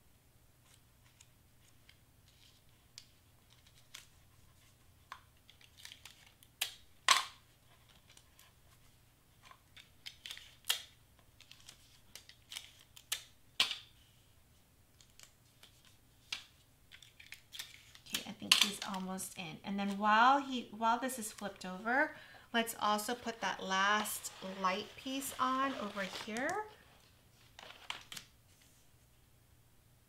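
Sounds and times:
paper rustling: 0:21.0 - 0:29.0.

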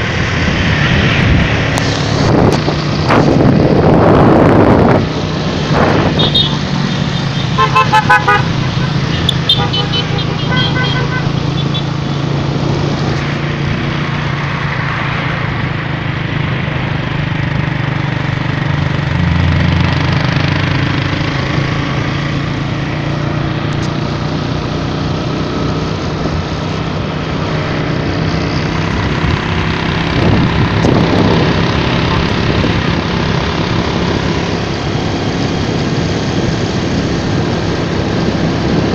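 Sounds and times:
wind and road noise: 0:00.0 - 0:38.9
motorcycle engine running: 0:15.8 - 0:38.9.

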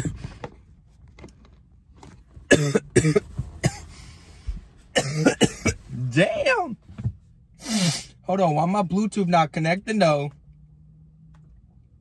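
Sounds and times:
man coughing: 0:02.5 - 0:03.9, 0:05.0 - 0:06.0.

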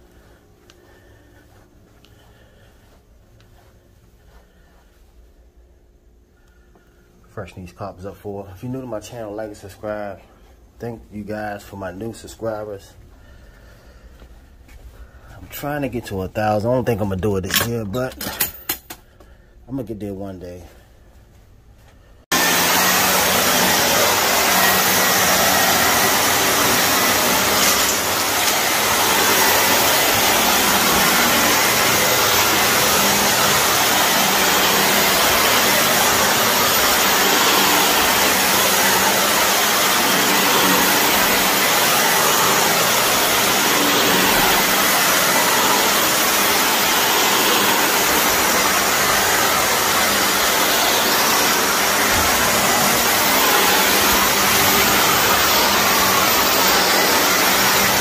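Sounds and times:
vacuum cleaner running on carpet: 0:03.6 - 0:05.0, 0:22.3 - 0:58.0.

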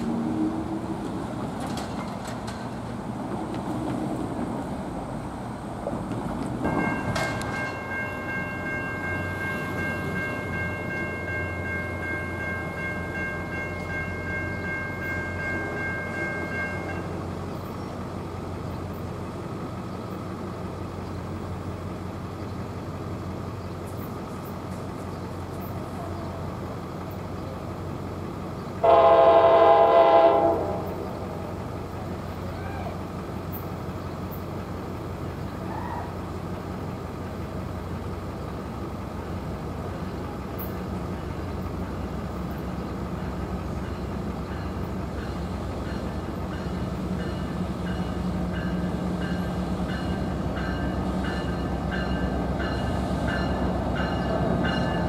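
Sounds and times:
train air horn blast: 0:28.8 - 0:31.0.

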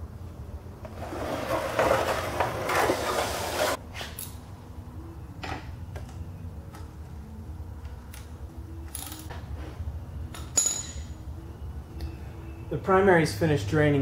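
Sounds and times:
low steady hum: 0:04.3 - 0:14.0.

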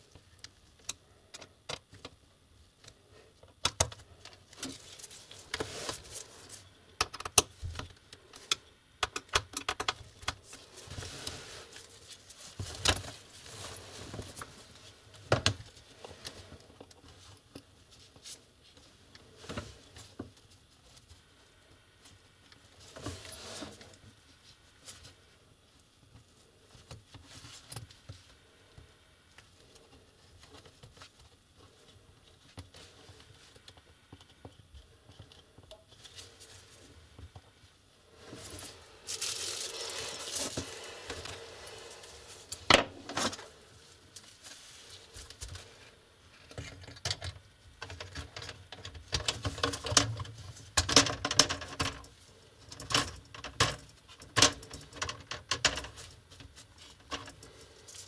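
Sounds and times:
plastic rustle: 0:38.1 - 0:45.8.

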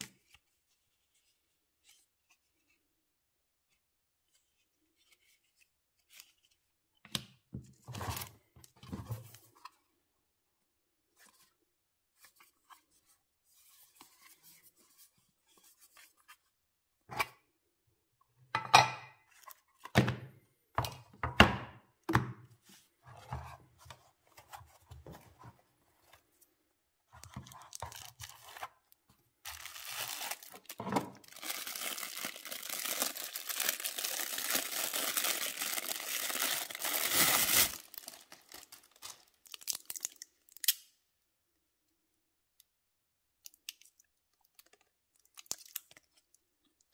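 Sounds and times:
plastic wrapping rustling and tearing: 0:27.2 - 0:40.7, 0:44.4 - 0:46.4.

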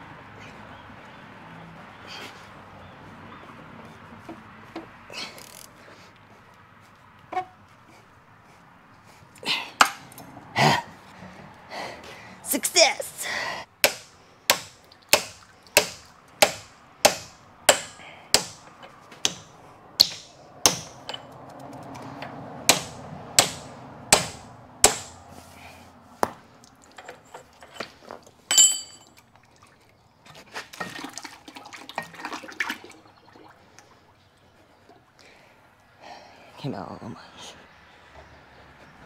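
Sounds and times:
hammer striking steel: 0:13.8 - 0:21.2, 0:22.7 - 0:25.2
metal clank ringing: 0:28.5 - 0:29.1.

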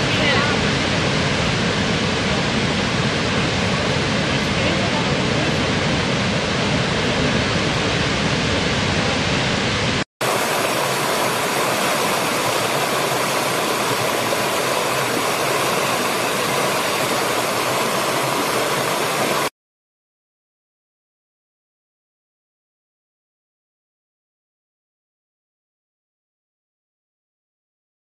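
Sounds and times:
large waterfall rushing: 0:00.0 - 0:19.5
stream splashing over rocks: 0:10.2 - 0:19.5.

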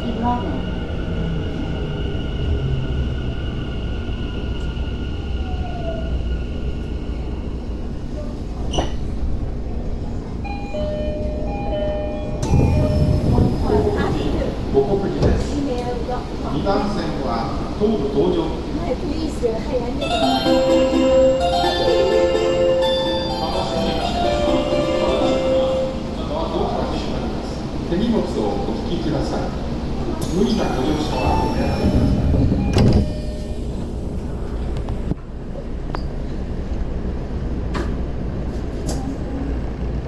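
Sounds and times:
door chime tones: 0:10.4 - 0:13.3, 0:31.3 - 0:33.6.

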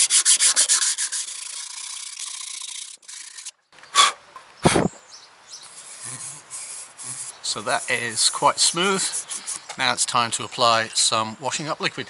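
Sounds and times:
sandpaper rasping strokes: 0:00.0 - 0:03.5, 0:05.7 - 0:09.7.

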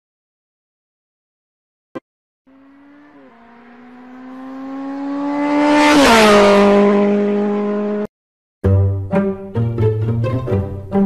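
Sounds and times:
fast car passing by: 0:02.5 - 0:08.1.

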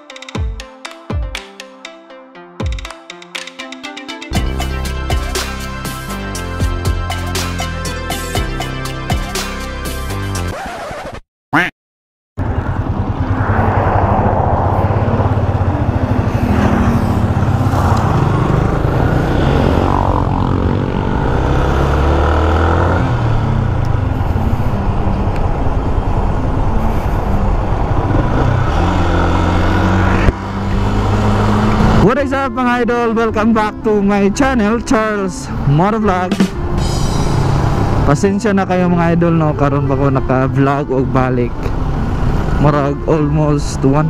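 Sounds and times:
wind noise: 0:12.4 - 0:21.8
motorcycle engine running: 0:12.4 - 0:32.0.

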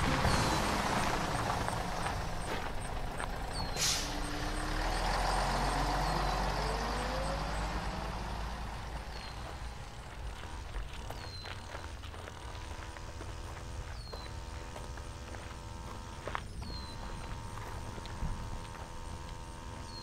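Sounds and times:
heavy road vehicle engine: 0:00.0 - 0:20.0
air hiss: 0:03.8 - 0:04.2.

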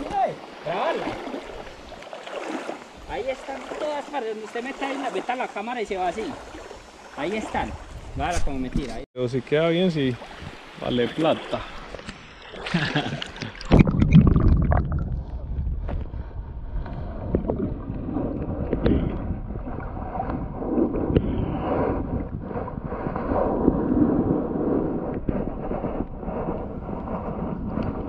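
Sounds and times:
splash into water: 0:00.0 - 0:05.3
muffled underwater water rumble: 0:10.1 - 0:28.0.

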